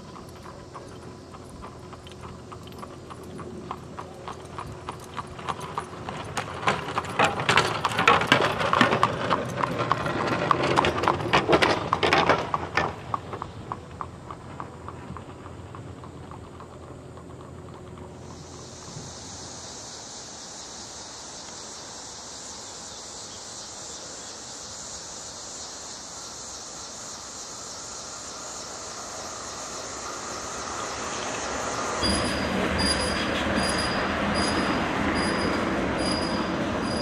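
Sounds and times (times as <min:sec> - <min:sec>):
horse hooves clip-clopping: 0:00.0 - 0:19.3.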